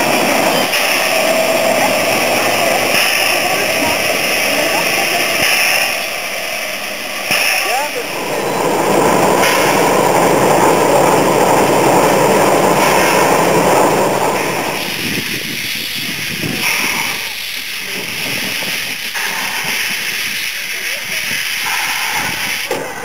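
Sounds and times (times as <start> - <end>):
steam blowing out: 0.0 - 23.0
steam locomotive hissing: 0.0 - 23.0.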